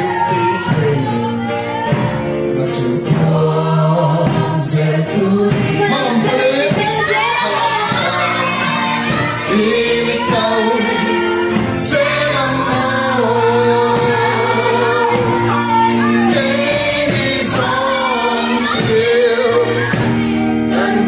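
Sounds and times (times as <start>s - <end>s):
electronic keyboard: 0.0s - 21.0s
group singing worship song: 0.0s - 21.0s.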